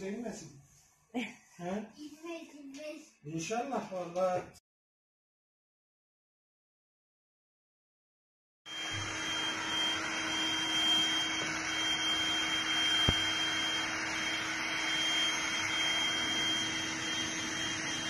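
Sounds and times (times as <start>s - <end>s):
electric air pump running: 8.7s - 18.0s.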